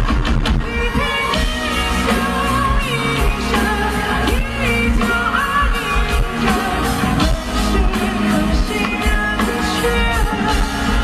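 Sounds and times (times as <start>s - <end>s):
live band playing pop: 0.0s - 11.0s
man singing into microphone: 0.8s - 11.0s.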